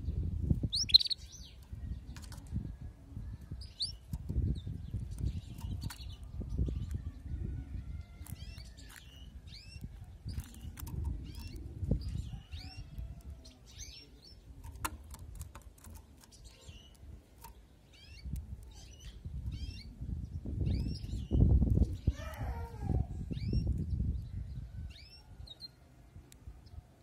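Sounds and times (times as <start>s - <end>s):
canary chirping: 0.6s - 2.0s, 3.4s - 7.1s, 8.0s - 20.0s.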